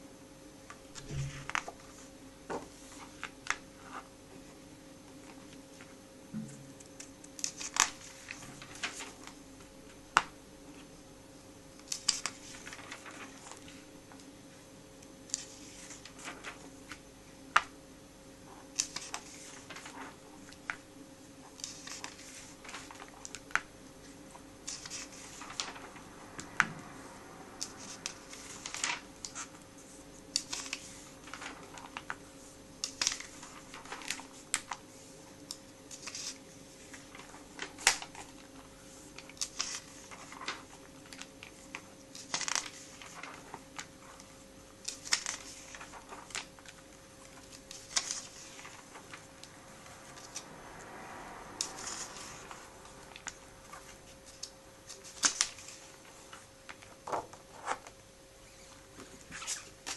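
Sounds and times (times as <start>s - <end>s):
faint hum: 0.0s - 59.9s
pages rustling: 1.0s - 4.1s, 6.8s - 9.4s, 11.8s - 14.3s, 15.3s - 17.0s, 18.5s - 20.8s, 21.4s - 26.6s, 27.6s - 50.6s, 51.6s - 58.0s.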